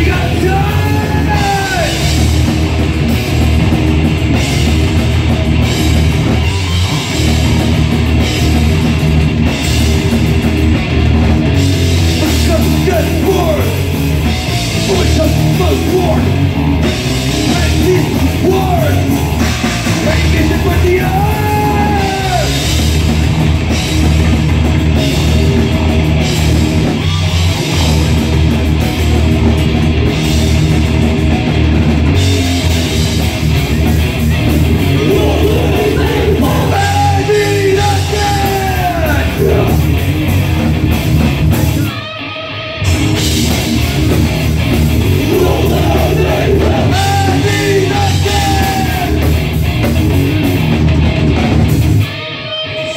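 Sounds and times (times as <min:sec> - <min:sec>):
rock band playing: 0:00.0 - 0:52.9
sung vocals: 0:34.8 - 0:40.1, 0:45.0 - 0:49.4.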